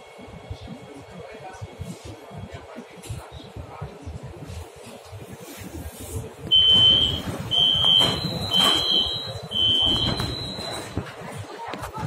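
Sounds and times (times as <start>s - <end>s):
door warning beeps: 6.5s - 11.0s.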